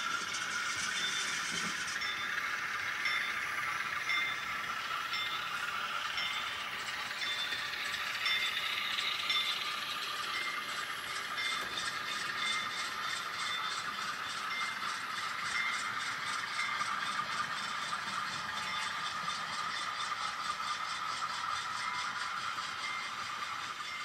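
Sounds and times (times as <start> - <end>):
model locomotive whirring: 0.0 - 24.0
rapid clicking of rolling cars: 0.0 - 24.0.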